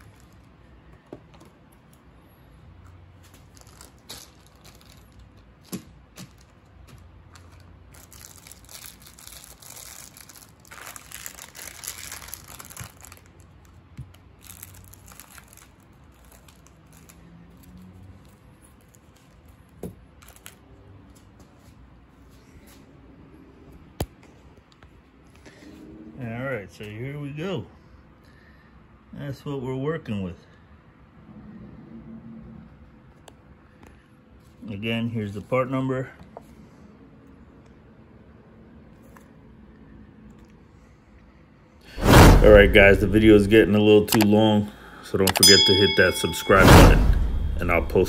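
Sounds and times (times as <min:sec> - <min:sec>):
packaging crinkling: 0:03.2 - 0:17.6.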